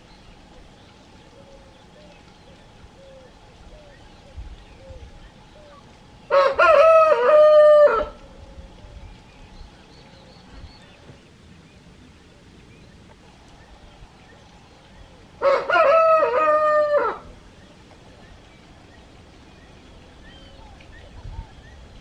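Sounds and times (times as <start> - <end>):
rooster crowing: 6.3 - 8.2, 15.4 - 17.3.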